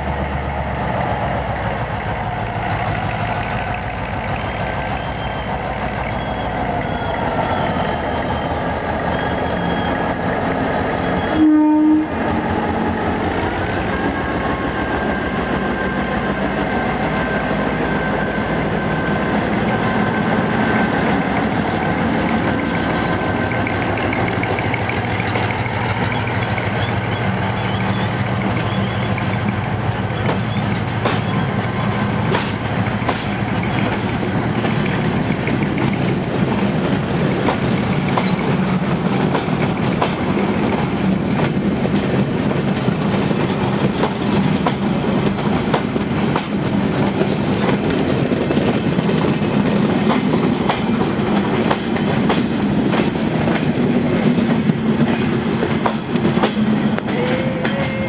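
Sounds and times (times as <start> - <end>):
diesel locomotive pulling out: 0.0 - 58.0
wheels clicking over rail joints: 21.3 - 58.0.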